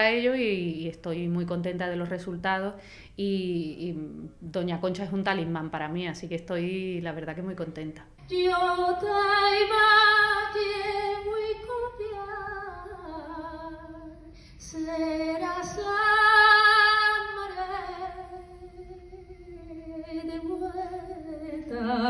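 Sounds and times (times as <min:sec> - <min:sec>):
singer breathing: 0:02.8 - 0:03.2, 0:14.3 - 0:14.6
woman singing unaccompanied: 0:08.2 - 0:22.0.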